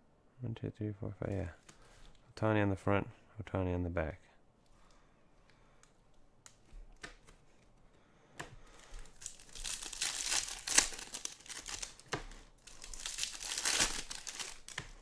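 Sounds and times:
foil wrapper tearing and crinkling: 8.8s - 15.0s.

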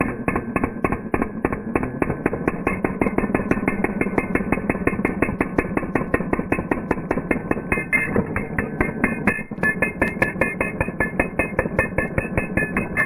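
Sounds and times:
hammer drill pounding into concrete: 0.0s - 13.0s.

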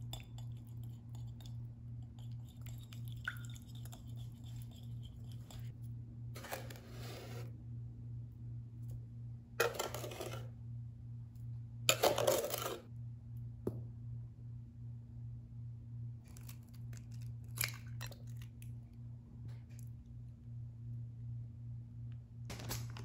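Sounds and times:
low hum: 0.0s - 23.0s
rustling and scraping handling noise: 6.4s - 7.5s, 9.6s - 10.5s.

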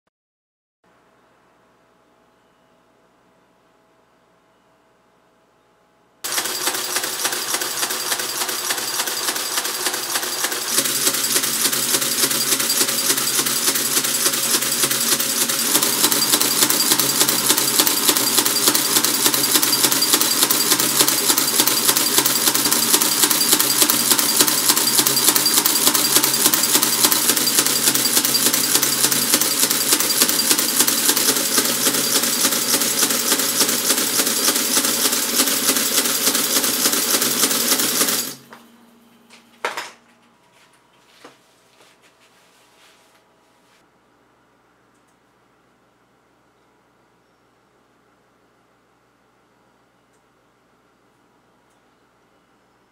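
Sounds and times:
adding machine clattering clicks: 6.3s - 38.4s.

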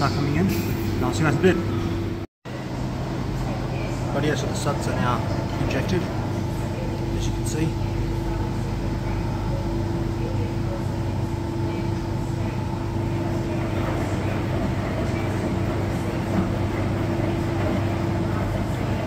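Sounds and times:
steady machine hum: 0.0s - 19.0s
washing machine drum sloshing: 12.0s - 19.0s.

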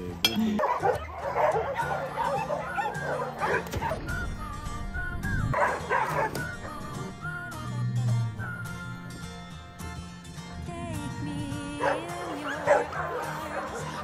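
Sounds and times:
background music with held notes: 0.0s - 14.0s
dogs barking and yipping: 0.5s - 4.2s, 5.5s - 7.2s, 11.7s - 14.0s.

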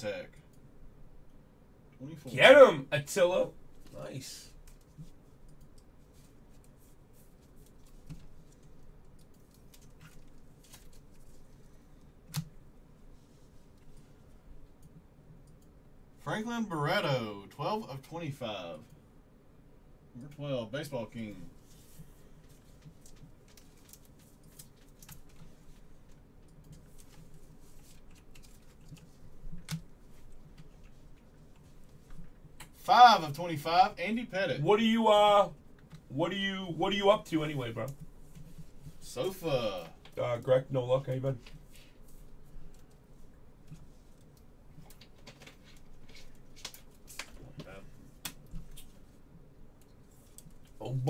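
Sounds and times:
trading cards rustling: 6.1s - 11.9s, 21.6s - 30.9s.

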